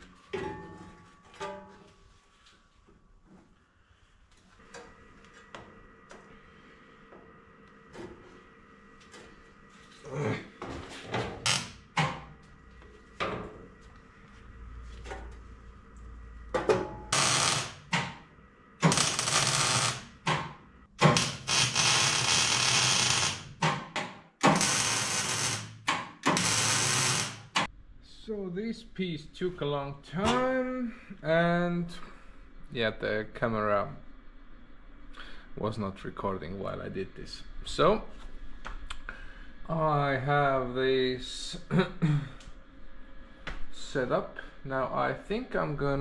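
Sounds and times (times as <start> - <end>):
loud bursts of harsh noise: 17.1 - 20.3, 21.0 - 23.6, 24.4 - 27.7.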